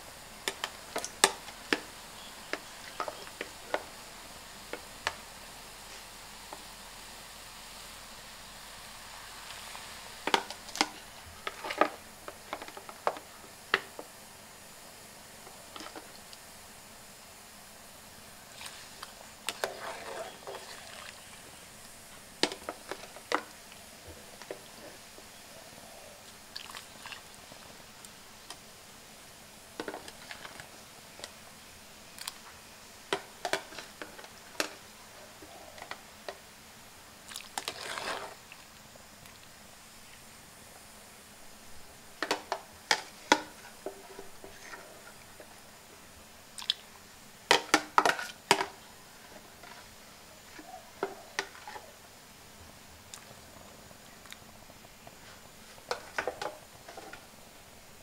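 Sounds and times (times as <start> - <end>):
low steady hiss: 0.0 - 58.0
splashing in broth: 37.3 - 38.3.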